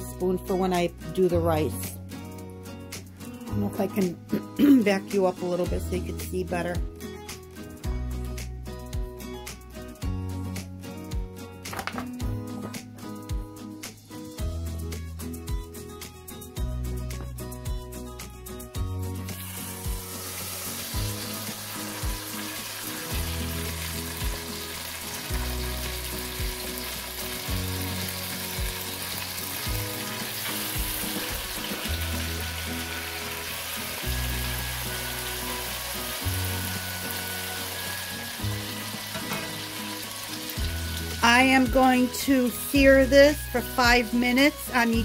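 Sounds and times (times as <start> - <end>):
background music: 0.0 - 45.0
chicken sizzling in a pan: 19.3 - 44.5.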